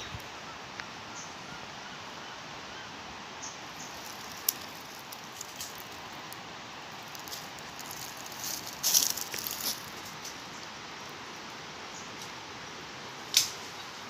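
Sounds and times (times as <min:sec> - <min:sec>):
steady outdoor hiss: 0:00.0 - 0:14.0
twigs and leaves rustling: 0:03.7 - 0:10.7
twig snapping: 0:04.0 - 0:06.4, 0:07.0 - 0:10.0.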